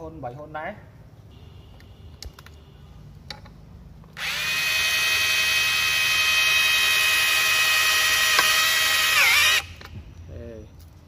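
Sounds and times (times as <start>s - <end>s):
rotary hammer whining: 4.0s - 10.0s.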